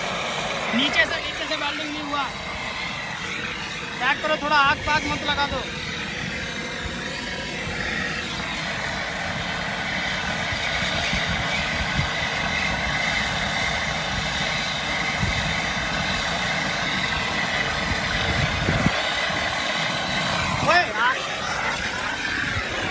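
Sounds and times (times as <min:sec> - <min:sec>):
torch flame hissing: 0:00.0 - 0:22.9.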